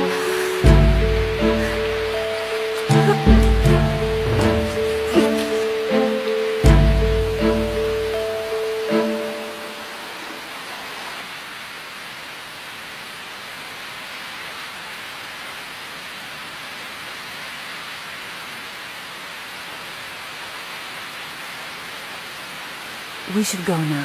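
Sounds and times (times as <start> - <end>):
river water rushing over rocks: 0.0 - 24.0.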